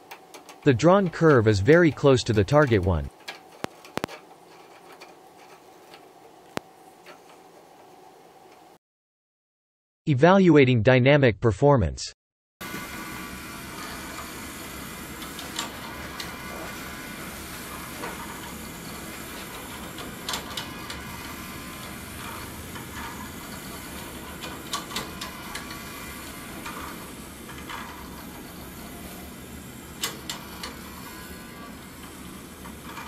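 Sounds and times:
small electric motors whirring: 12.7s - 33.0s.

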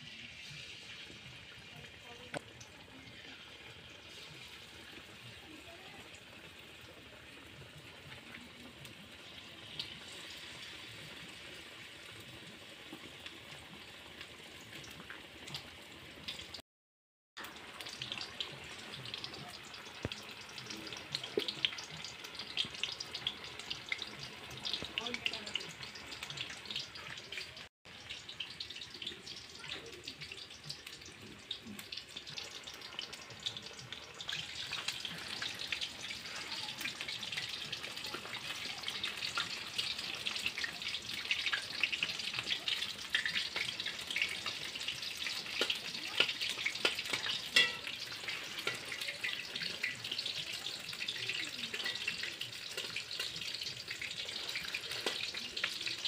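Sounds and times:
oil sizzling and crackling: 0.0s - 16.6s, 17.4s - 56.0s
metal spatula clinking on pan: 46.8s - 49.4s, 51.8s - 52.1s.

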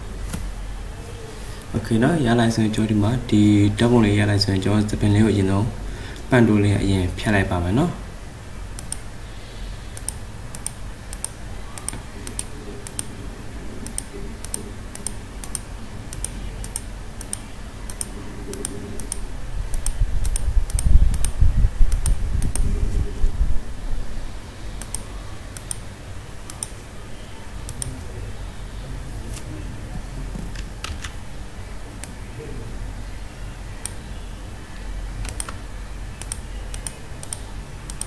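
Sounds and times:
low rumbling noise: 0.0s - 37.9s
computer mouse clicking: 8.8s - 9.1s, 10.0s - 13.1s, 13.8s - 22.7s, 24.8s - 25.9s, 26.5s - 26.8s, 27.7s - 28.0s, 32.0s - 32.2s, 35.2s - 35.6s, 36.2s - 38.0s.

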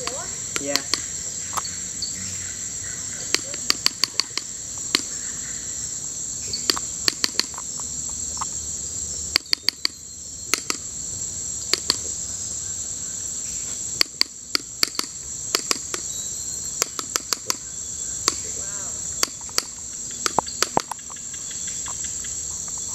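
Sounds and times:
loud sharp clicks: 0.0s - 1.7s, 3.3s - 5.1s, 6.6s - 7.7s, 9.3s - 10.8s, 11.7s - 12.1s, 14.0s - 16.1s, 16.8s - 17.6s, 18.2s - 18.5s, 19.2s - 21.4s
tropical insects chorus: 0.0s - 22.9s.

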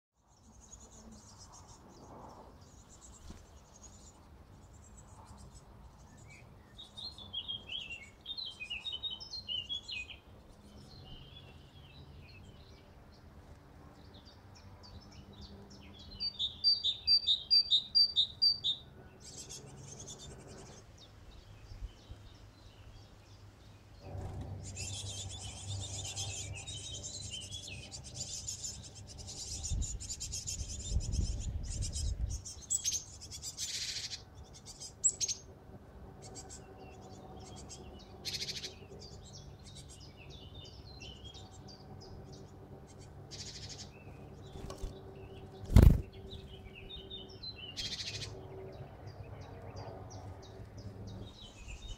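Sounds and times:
birds twittering: 0.2s - 51.9s
birds chattering: 0.3s - 51.9s.

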